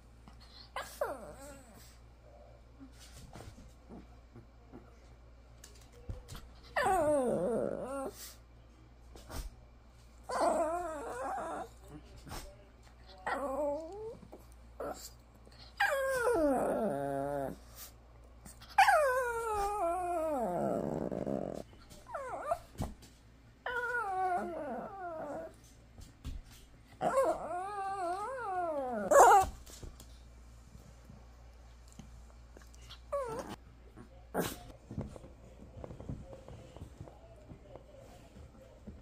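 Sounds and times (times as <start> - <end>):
dog whining: 6.8 - 8.2, 10.3 - 11.8, 15.8 - 17.6, 18.7 - 22.6, 23.6 - 25.5, 27.0 - 29.4, 33.1 - 33.6.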